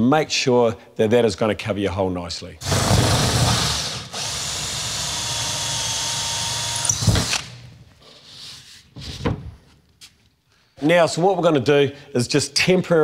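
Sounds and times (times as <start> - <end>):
power drill cutting wallboard: 2.6 - 7.6.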